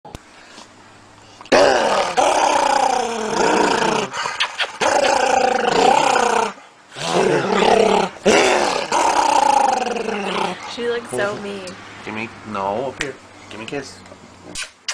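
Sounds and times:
dog play growling: 0:01.8 - 0:11.4.

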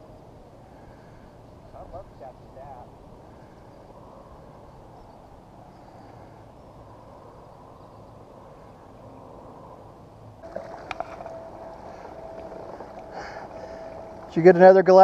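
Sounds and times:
low wind: 0:00.0 - 0:15.0
water noise: 0:10.3 - 0:15.0
steady thin tone: 0:10.4 - 0:15.0.

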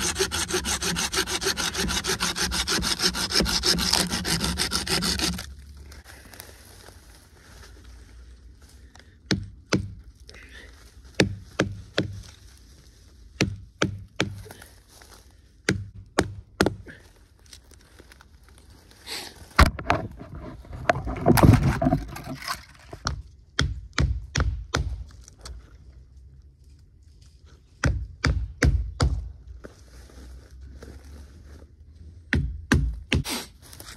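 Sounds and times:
rough scraping and crackling: 0:00.0 - 0:07.5, 0:17.4 - 0:23.1.

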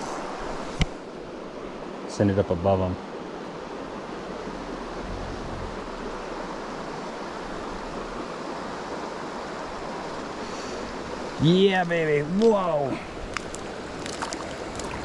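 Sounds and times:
creek running over rocks: 0:00.0 - 0:15.0.

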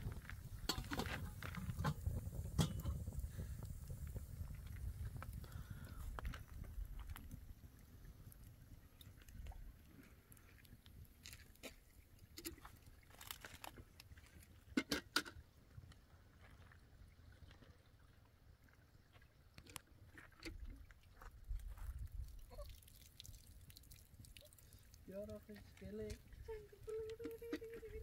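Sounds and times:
wind rumble on microphone: 0:00.0 - 0:09.7, 0:21.4 - 0:22.6
light clicks and crunches: 0:10.0 - 0:15.4.

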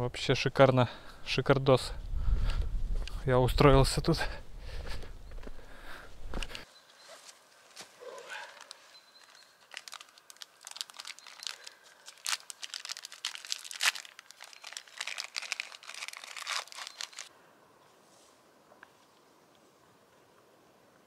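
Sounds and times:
plastic crinkling: 0:08.2 - 0:17.3.

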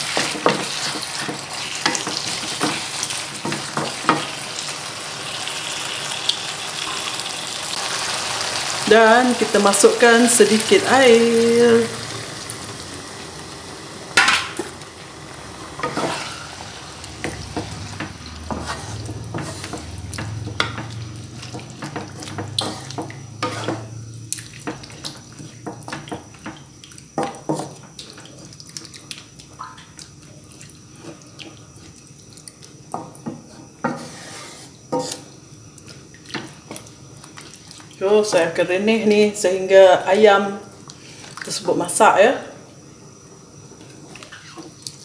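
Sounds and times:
wooden spatula scraping wok: 0:00.0 - 0:04.5, 0:15.4 - 0:26.6, 0:33.2 - 0:35.3
curry sizzling: 0:00.0 - 0:45.0.

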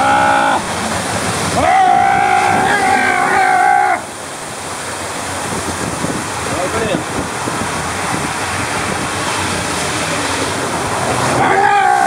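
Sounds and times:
man yelling: 0:00.0 - 0:00.7, 0:01.6 - 0:04.1, 0:11.3 - 0:12.0
water rushing in tube: 0:00.0 - 0:12.0.

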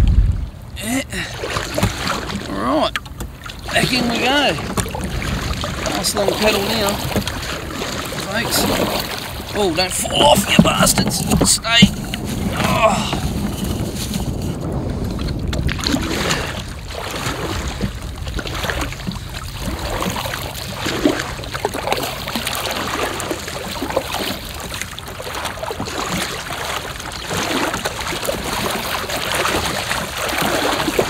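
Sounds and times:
wind noise on microphone: 0:00.0 - 0:00.8, 0:10.1 - 0:20.3
waves slapping hull: 0:00.0 - 0:31.0
paddle strokes splashing: 0:00.4 - 0:31.0.

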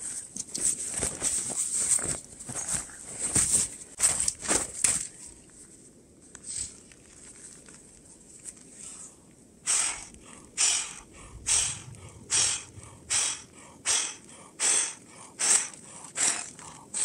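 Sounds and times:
loud puffs of breath: 0:09.6 - 0:17.0.

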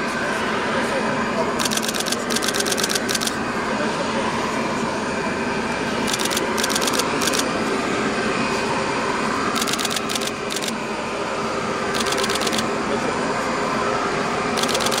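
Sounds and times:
steady rushing noise: 0:00.0 - 0:15.0
bursts of rapid clicking: 0:01.6 - 0:03.4, 0:06.1 - 0:07.5, 0:09.6 - 0:10.8, 0:14.6 - 0:15.0.

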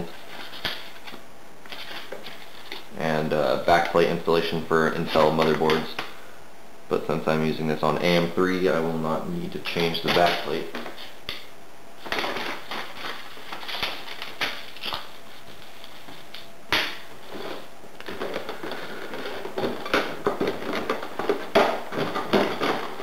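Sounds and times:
packaging rustling and scraping: 0:00.0 - 0:02.9, 0:12.0 - 0:23.0.

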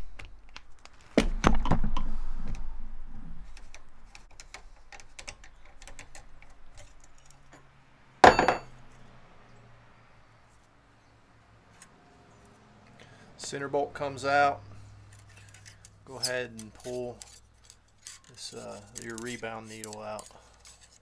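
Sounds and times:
ringing metallic clank: 0:08.2 - 0:08.7
metal tools clicking and rattling: 0:15.1 - 0:21.0.

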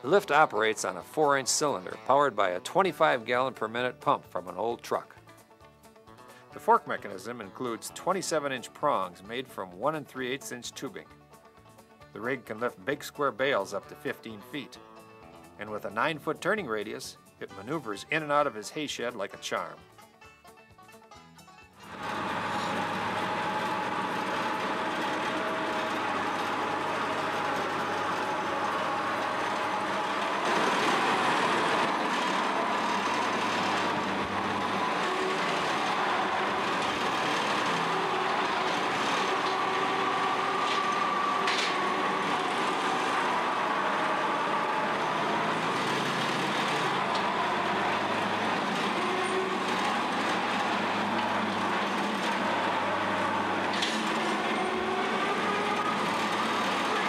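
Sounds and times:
engine running with whine: 0:21.8 - 0:57.0.

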